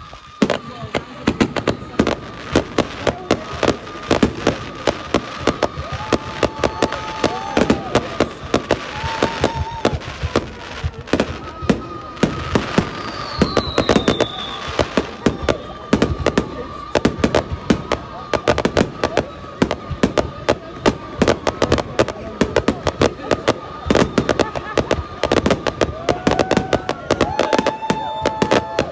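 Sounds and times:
firework whistle falling in pitch: 0.0 - 19.4, 23.4 - 28.9
fireworks bangs and crackles: 0.0 - 28.9.

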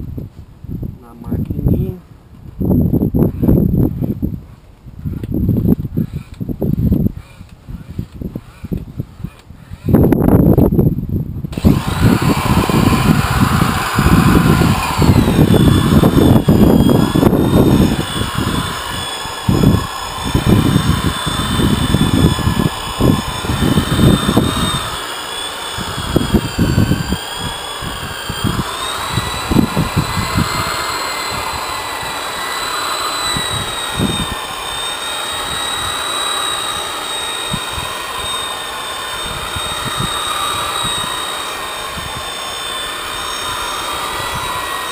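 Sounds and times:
electric polisher motor whine: 11.5 - 44.9.

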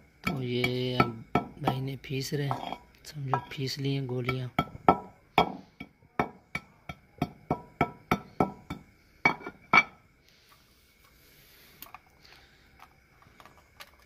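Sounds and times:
hammer knocking in ringing bowl: 0.2 - 3.6, 4.2 - 10.0.

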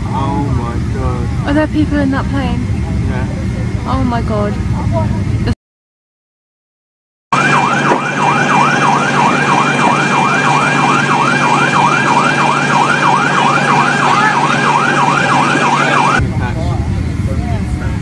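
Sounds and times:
steady hum: 0.0 - 5.6
siren yelping: 7.3 - 16.2.

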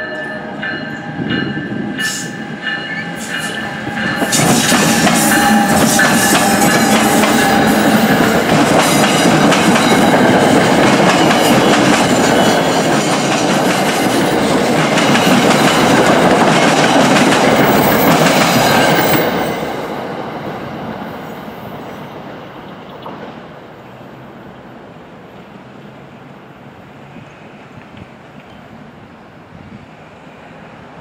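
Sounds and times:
passenger train passing: 0.0 - 31.0.

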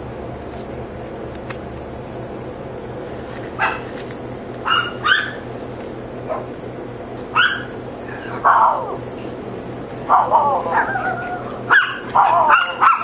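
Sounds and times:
steady low hum: 0.0 - 13.0
dog barking: 3.6 - 3.9, 4.6 - 5.4, 7.3 - 7.7, 8.4 - 8.9, 10.1 - 13.0.

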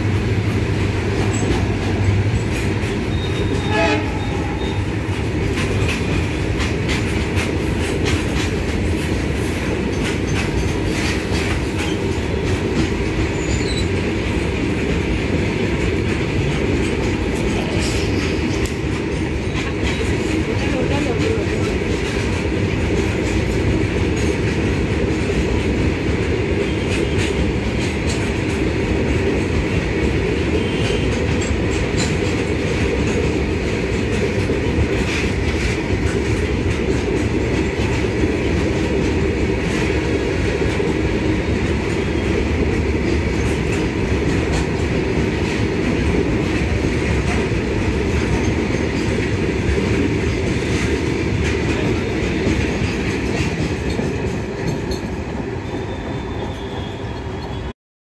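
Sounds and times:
train wheels rumbling on rails: 0.0 - 57.7
wheels clicking and clanking: 4.6 - 14.0.

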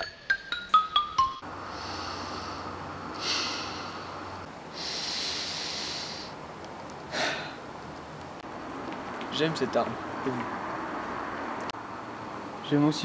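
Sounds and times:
steady outdoor hiss: 0.0 - 13.0
boy breathing close to microphone: 1.6 - 6.4, 7.1 - 7.6.

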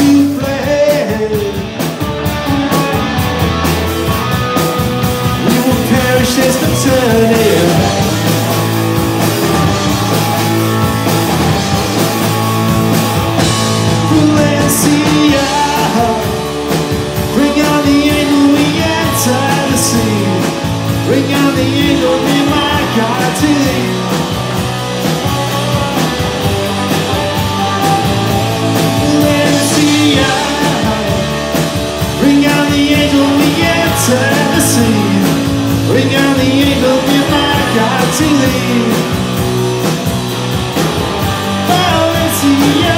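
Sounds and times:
person singing: 0.0 - 2.8, 5.2 - 8.3, 13.4 - 39.6, 41.3 - 42.9
drum kit with cymbals: 0.0 - 42.9
electric bass: 0.0 - 42.9
guitars: 0.0 - 42.9.

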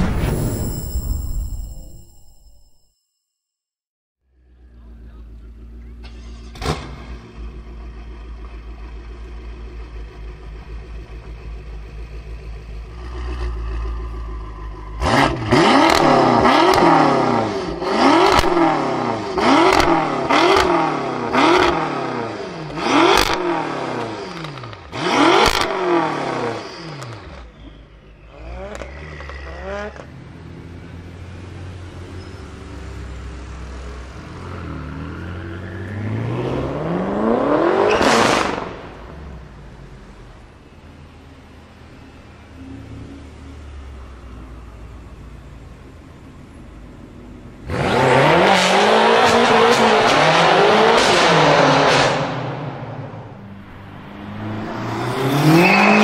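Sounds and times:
car engine idling and revving: 4.2 - 56.0.

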